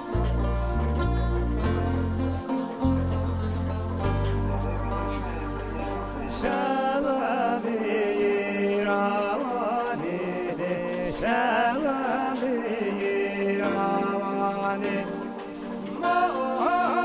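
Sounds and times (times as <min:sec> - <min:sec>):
steady drone: 0:00.0 - 0:09.1
person singing ornamented melody: 0:04.6 - 0:17.0.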